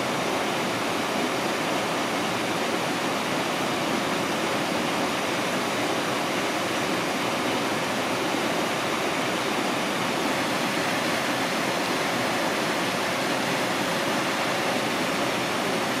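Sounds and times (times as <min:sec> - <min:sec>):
flowing water rushing: 0:00.0 - 0:16.0.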